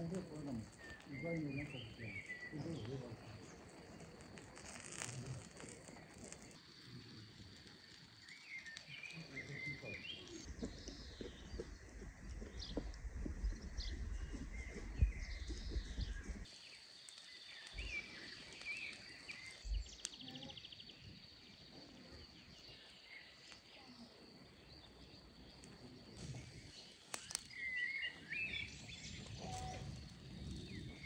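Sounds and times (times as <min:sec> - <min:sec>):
birds chirping: 0:00.0 - 0:31.0
low rumble with ticks: 0:10.4 - 0:16.5
high insect buzz: 0:25.6 - 0:31.0.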